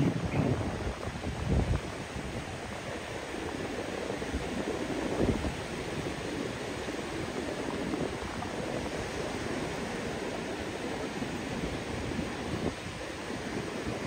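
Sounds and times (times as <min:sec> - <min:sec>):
surf breaking on beach: 0:00.0 - 0:14.0
wind rumbling on microphone: 0:00.0 - 0:14.0.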